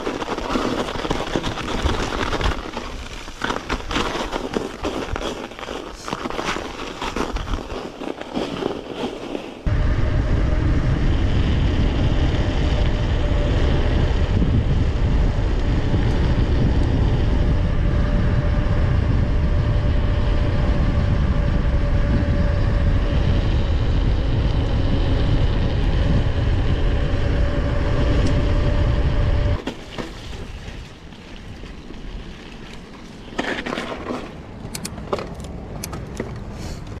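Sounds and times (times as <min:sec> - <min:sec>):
bicycle tyre hum: 0:00.0 - 0:37.0
wind noise on microphone: 0:09.6 - 0:29.6
bicycle clicks: 0:11.6 - 0:17.7, 0:31.9 - 0:37.0.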